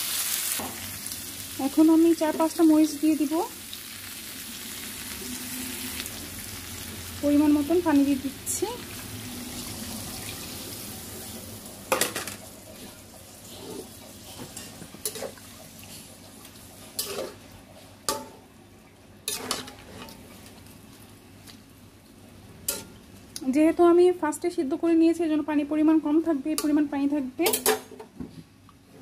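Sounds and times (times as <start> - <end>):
water hissing in hot pan: 0.0 - 17.5
metal spatula scraping pan: 16.9 - 17.4, 19.3 - 20.2.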